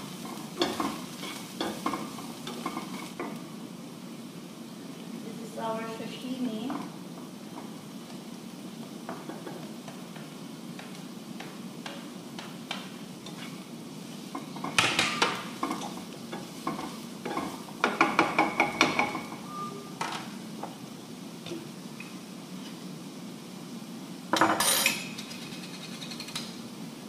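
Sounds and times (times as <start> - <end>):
spatula knocking and scraping pan: 0.0 - 3.4, 9.0 - 20.8
vegetables sizzling in a pan: 0.0 - 27.0.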